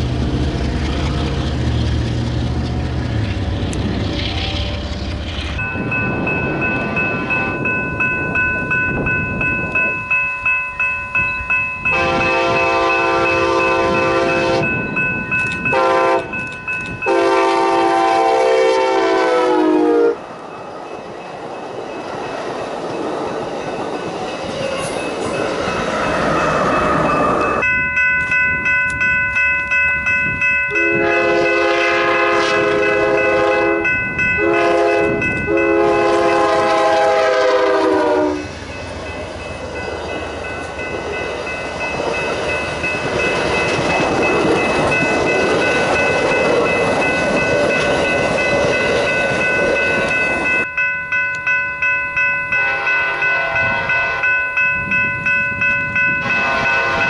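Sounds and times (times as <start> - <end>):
crossing bell ringing: 0.0 - 57.0
train cars rumbling by: 0.0 - 57.0
train horn blasts: 11.9 - 14.8, 15.7 - 16.4, 17.0 - 20.2, 30.7 - 38.5, 52.6 - 54.4, 56.2 - 57.0.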